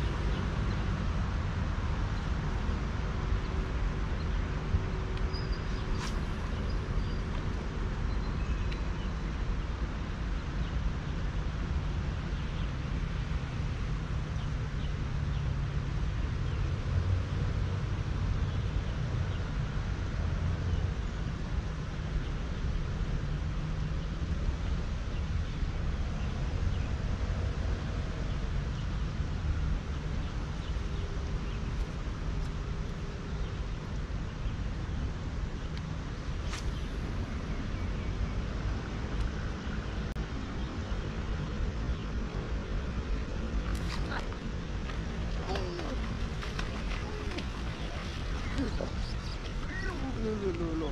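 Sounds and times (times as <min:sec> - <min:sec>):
wind rumble on microphone: 0:00.0 - 0:50.9.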